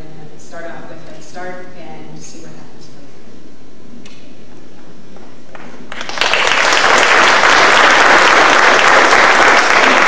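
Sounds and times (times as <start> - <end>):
audience applauding: 5.9 - 10.0.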